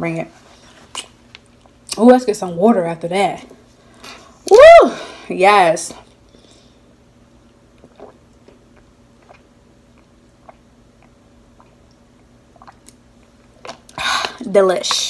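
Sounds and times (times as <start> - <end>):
low steady hum: 0.0 - 15.0
person gulping water: 7.7 - 14.4.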